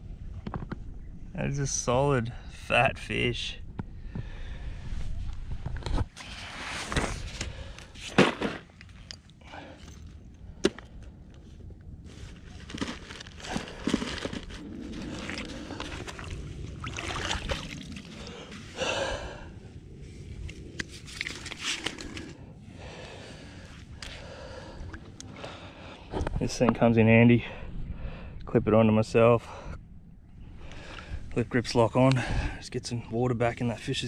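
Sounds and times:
bag rustling: 12.1 - 18.7.

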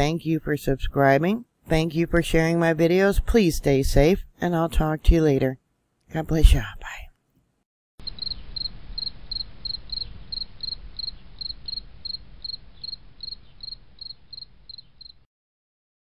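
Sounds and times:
cricket chirping: 8.0 - 15.3.

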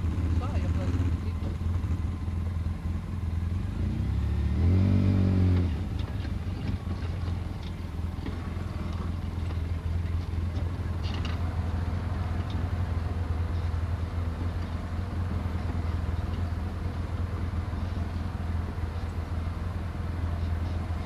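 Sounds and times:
quad bike engine revving: 0.0 - 2.3, 3.5 - 9.2.

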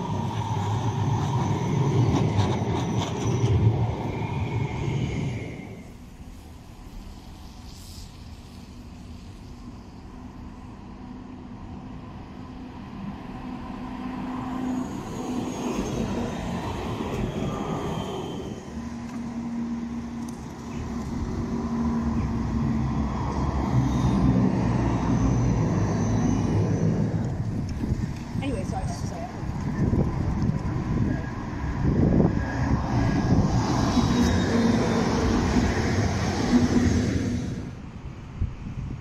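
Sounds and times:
tram motors humming: 0.0 - 7.6, 8.8 - 39.0
tram wheels rumbling on rails: 0.0 - 39.0.

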